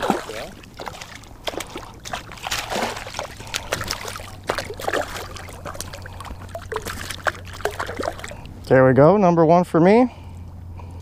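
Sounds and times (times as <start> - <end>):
fish splashing in water: 0.0 - 8.5.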